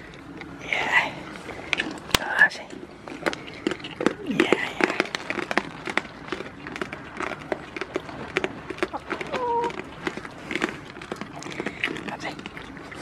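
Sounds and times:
goat hooves clicking and tapping: 0:03.0 - 0:13.0
goat call: 0:08.9 - 0:09.9.

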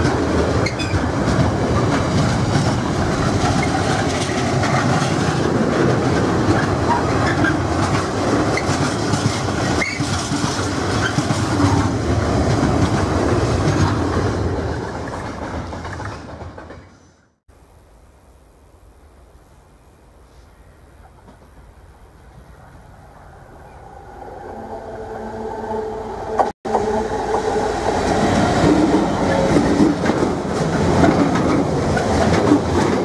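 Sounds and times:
freight train wagons rolling: 0:00.0 - 0:17.3, 0:26.3 - 0:33.0.

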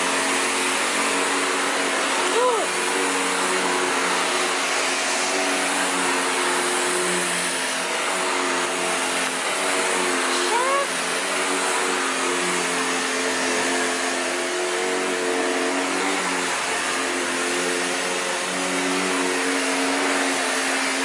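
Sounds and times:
vacuum cleaner on carpet: 0:00.0 - 0:21.0.

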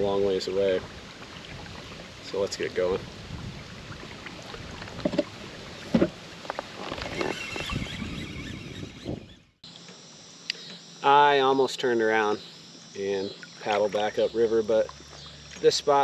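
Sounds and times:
water rushing against hull: 0:00.0 - 0:09.2
wind on microphone: 0:00.8 - 0:09.5
knocks on kayak hull: 0:05.9 - 0:06.2.

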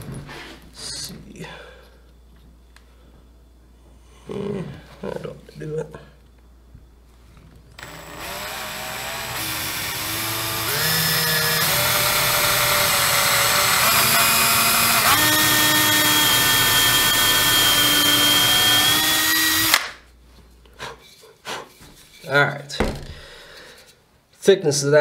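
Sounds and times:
power drill boring wood: 0:07.8 - 0:19.8.

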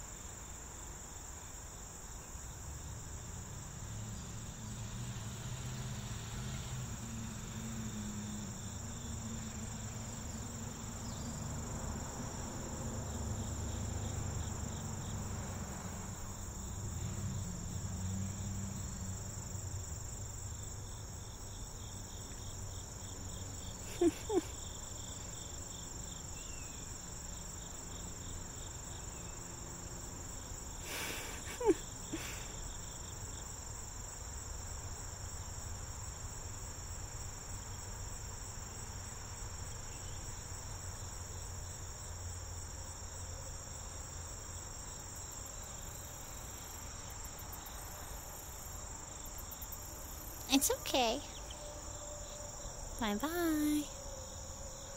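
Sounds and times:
insects chorus: 0:00.0 - 0:54.9.

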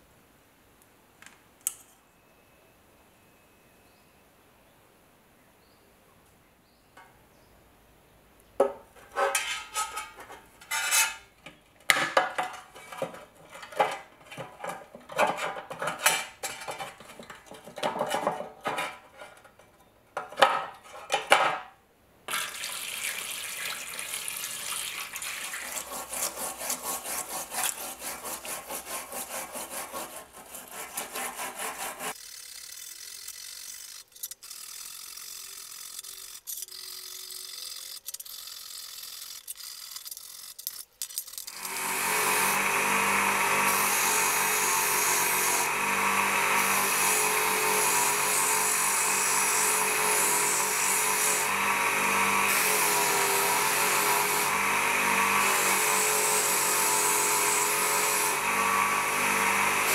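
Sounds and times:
metal pick scraping rust: 0:09.0 - 0:21.4, 0:25.7 - 0:32.2
tap water running into tray: 0:22.3 - 0:28.9
bristle brush scrubbing in liquid: 0:24.6 - 0:32.2.

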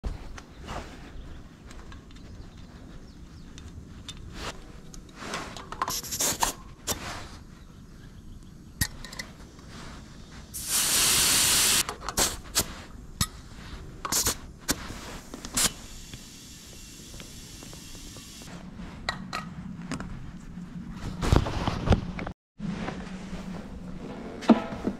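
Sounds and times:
air hissing from valve: 0:10.6 - 0:12.9, 0:14.1 - 0:18.5.

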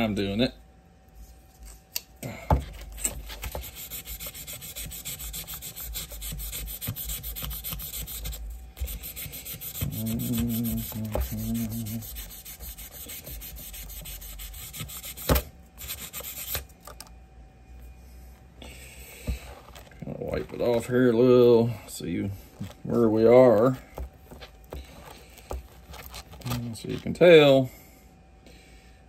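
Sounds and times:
sandpaper rubbing on metal: 0:03.2 - 0:16.6.

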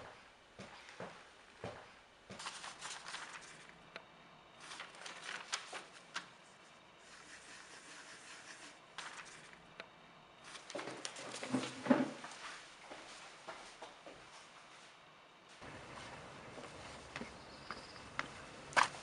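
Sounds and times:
newspaper pages rustling: 0:02.4 - 0:03.8, 0:04.6 - 0:06.4, 0:07.1 - 0:09.5.

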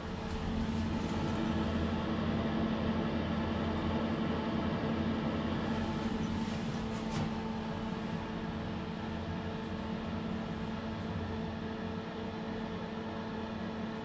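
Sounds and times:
hydraulic elevator hum: 0:00.0 - 0:03.9, 0:04.6 - 0:11.2.

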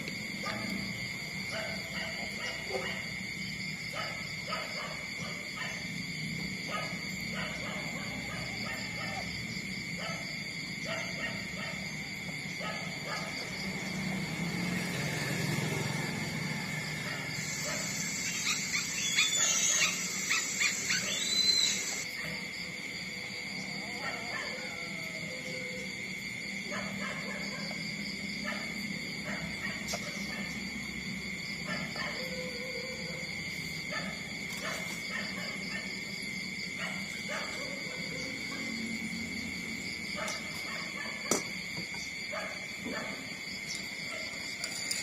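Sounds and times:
steady high-pitched drone: 0:16.5 - 0:22.2
high-pitched hum: 0:17.0 - 0:22.0
puppies squeaking: 0:17.3 - 0:22.0.

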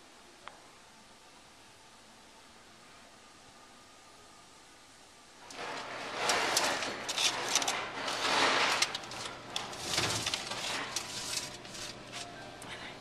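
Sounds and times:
metal rack rattling and scraping: 0:05.4 - 0:12.3
foil crinkling: 0:05.6 - 0:12.3.

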